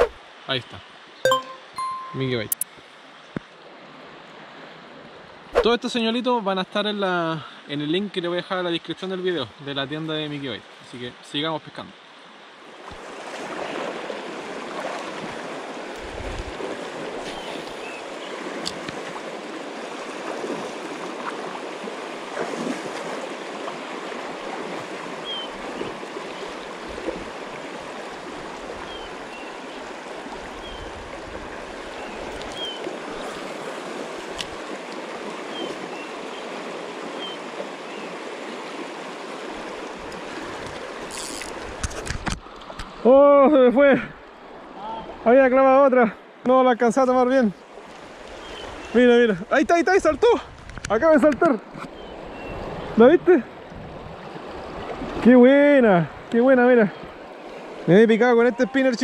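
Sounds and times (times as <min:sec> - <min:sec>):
faint high chirps: 0:01.3 - 0:02.6
river water rushing: 0:12.0 - 0:43.1, 0:44.1 - 0:45.3, 0:47.6 - 0:49.9, 0:51.6 - 0:59.0.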